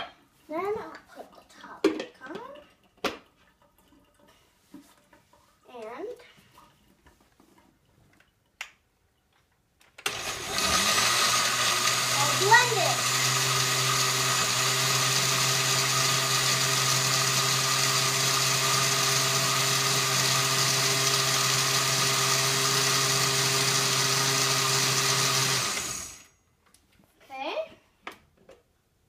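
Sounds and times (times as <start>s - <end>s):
blender running: 10.0s - 26.3s.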